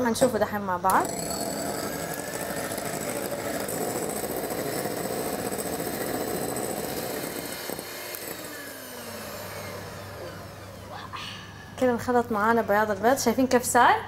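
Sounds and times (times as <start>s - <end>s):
electric hand mixer running: 1.0s - 11.0s.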